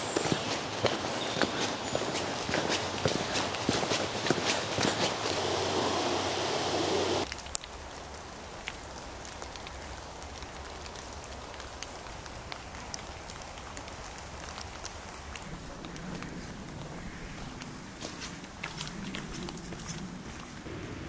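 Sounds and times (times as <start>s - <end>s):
footsteps crunching on gravel: 0.0s - 6.0s, 17.4s - 20.7s
faint steady hiss: 5.0s - 18.5s.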